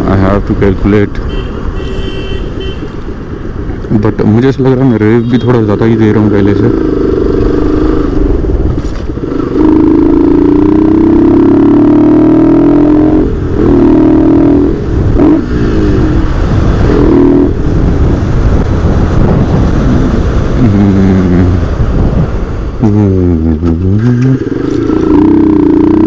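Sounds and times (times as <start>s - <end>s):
motorcycle engine accelerating: 5.3s - 26.0s.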